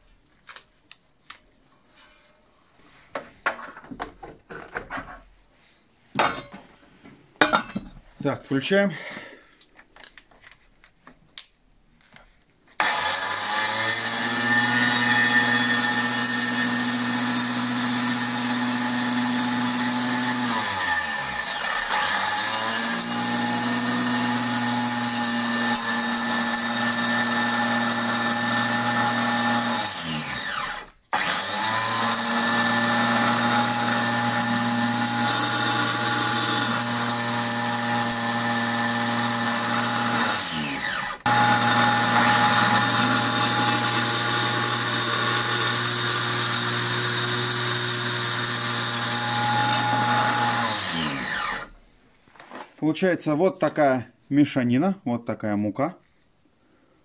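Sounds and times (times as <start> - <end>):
angle grinder whining: 12.8 - 51.8.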